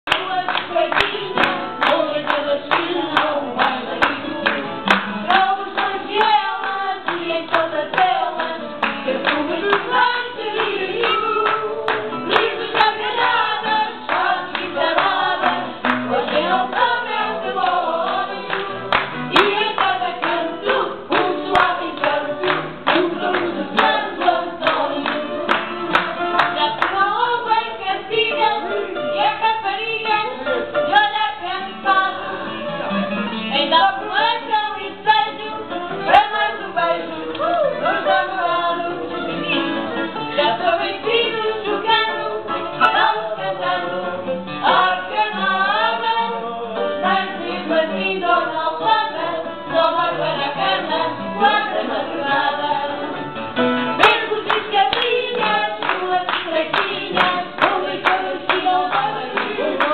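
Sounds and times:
hand clapping: 0:00.1 - 0:27.5, 0:54.0 - 0:59.9
group of people singing: 0:00.1 - 0:59.9.

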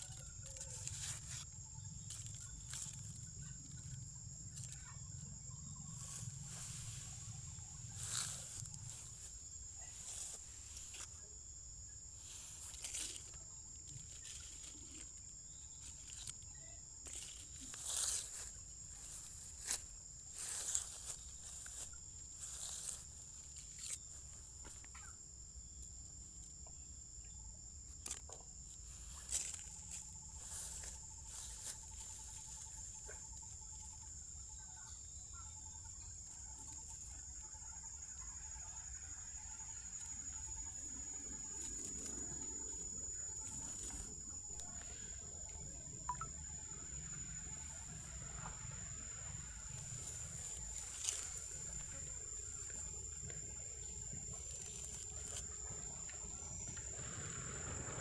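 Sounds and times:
high-pitched insect drone: 0:00.0 - 0:58.0.

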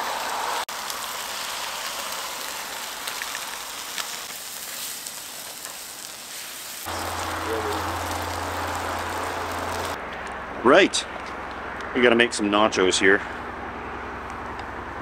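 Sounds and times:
chicken sizzling in frying pan: 0:00.2 - 0:10.0
faint crackles: 0:00.7 - 0:10.0.

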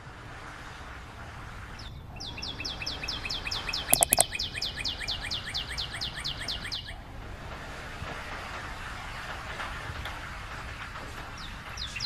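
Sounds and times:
sharp clicks: 0:04.0 - 0:04.2.

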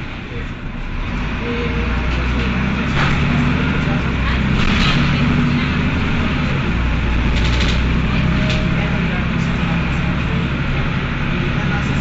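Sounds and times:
bus engine under load: 0:00.0 - 0:12.0
transmission clutch engaging: 0:07.2 - 0:08.8.

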